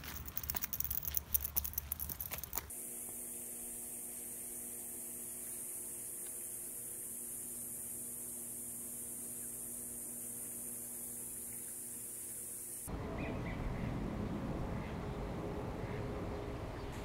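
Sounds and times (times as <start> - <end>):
electrical hum with hiss: 2.5 - 12.9.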